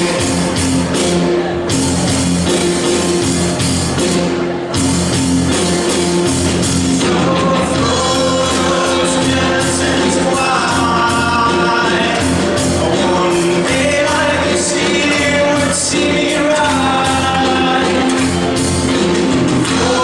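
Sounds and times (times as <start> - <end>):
steady beat: 0.0 - 20.0
choir singing in harmony: 6.8 - 18.2, 19.6 - 20.0.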